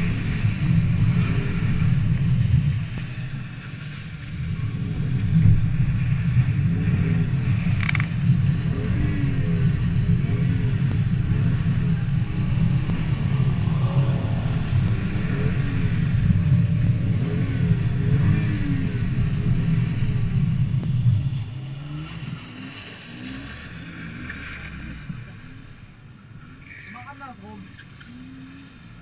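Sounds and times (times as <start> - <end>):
car engine revving high: 4.4 - 26.8.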